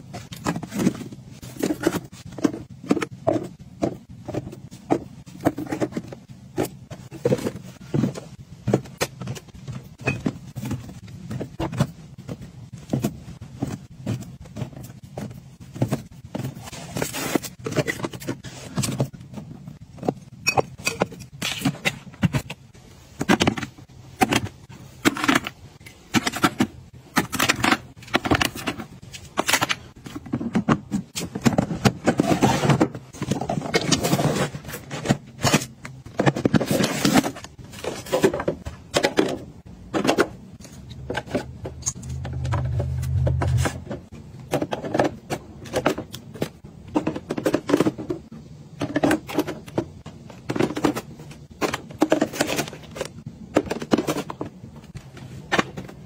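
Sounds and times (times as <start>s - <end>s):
plastic items tapping and clicking: 0.0s - 56.0s
short low hum: 41.8s - 43.9s.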